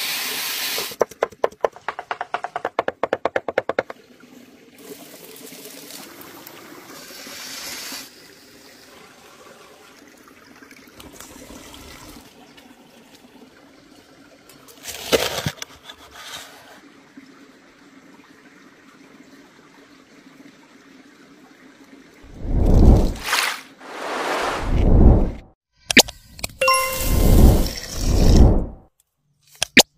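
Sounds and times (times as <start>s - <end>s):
small stream trickling: 3.8s - 15.3s, 16.8s - 22.4s.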